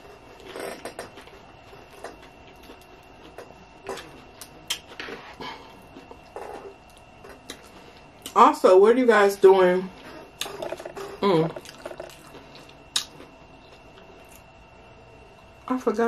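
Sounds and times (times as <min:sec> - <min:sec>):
chewing with mouth clicks: 0:11.5 - 0:14.5.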